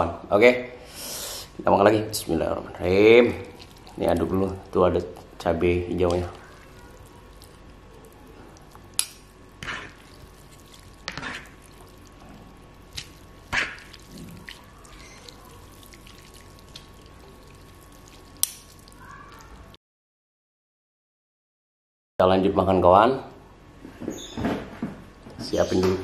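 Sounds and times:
wet noodle squelches: 2.2s - 19.8s.

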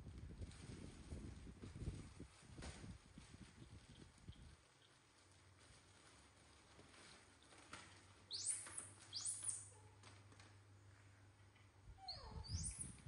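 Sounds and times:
faint clicks and rustles: 0.0s - 13.0s
monkey squeaking: 8.3s - 9.8s, 12.0s - 13.0s.

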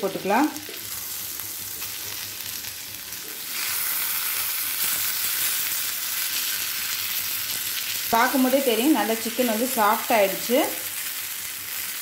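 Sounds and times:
chicken sizzling in oil: 0.0s - 12.0s
spatula turning food: 0.6s - 10.1s.

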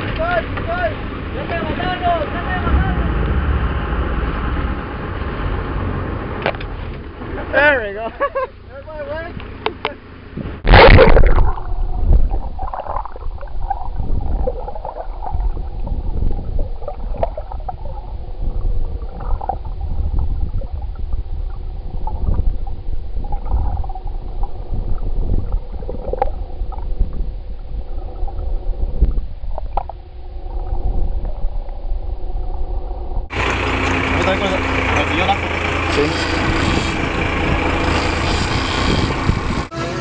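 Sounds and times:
loud splash into water: 10.6s - 20.8s
muffled underwater gurgling: 10.6s - 33.3s.

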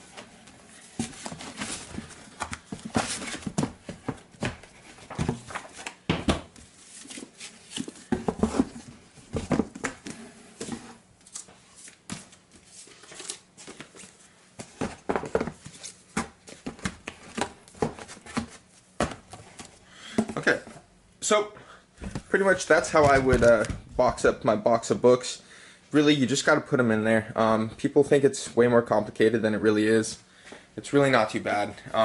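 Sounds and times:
books knocking in cardboard box: 22.0s - 24.3s.

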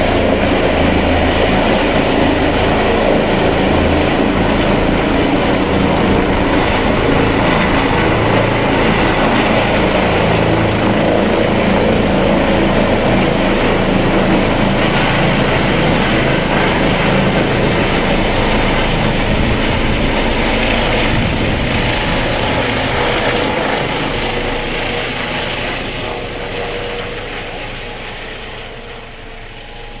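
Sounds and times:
helicopter rotor and turbine whine: 0.0s - 30.0s.

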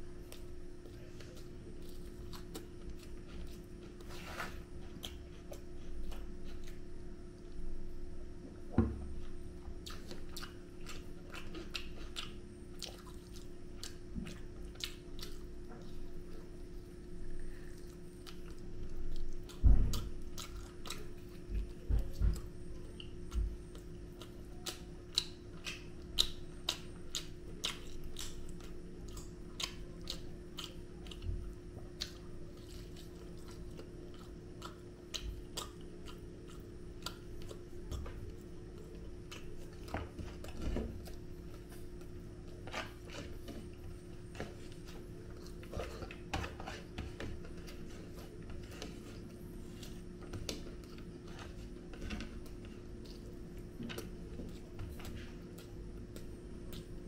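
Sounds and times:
man chewing food: 0.0s - 57.0s
steady low hum: 0.0s - 57.0s.

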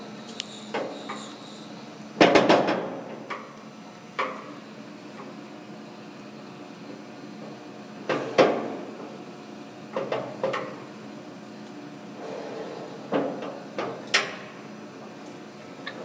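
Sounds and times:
machine low hum: 0.0s - 2.3s.

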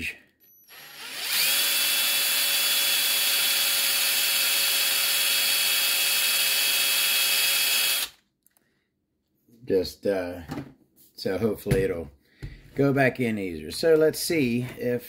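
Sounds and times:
power drill motor whine: 0.4s - 8.2s.

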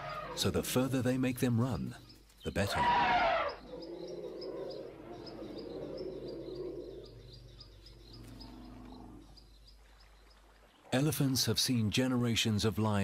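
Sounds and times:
low animal rumble: 2.8s - 9.5s.

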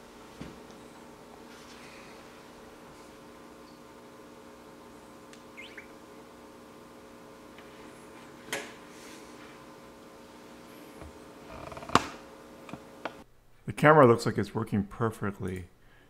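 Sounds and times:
faint steady hum: 0.0s - 16.0s
tiny chirps: 5.5s - 6.0s.

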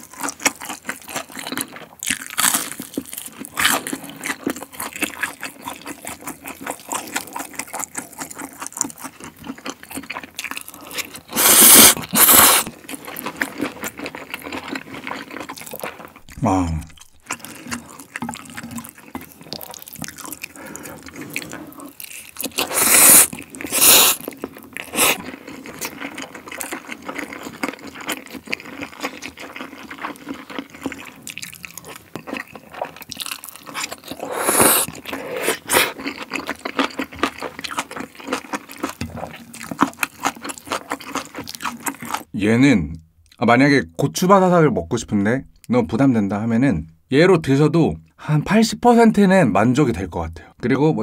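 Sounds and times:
wet chewing and smacking: 0.0s - 42.3s
loud noodle slurps: 10.8s - 12.7s, 22.5s - 25.7s, 33.7s - 36.2s.

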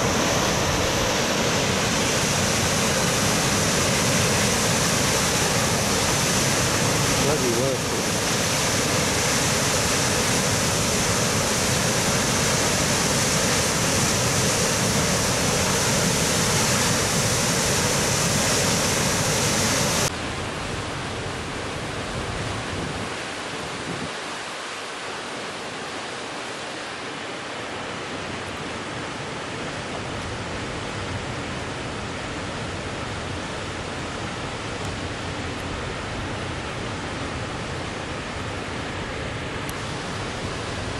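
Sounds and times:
waterfall rushing through gorge: 0.0s - 20.1s.

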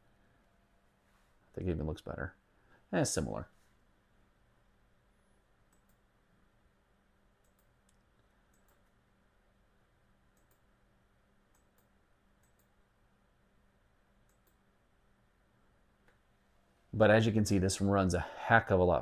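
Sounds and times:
room hum: 0.0s - 19.0s
computer mouse clicks: 5.7s - 6.0s, 7.4s - 9.0s, 10.3s - 10.7s, 11.5s - 12.7s, 14.2s - 14.6s.

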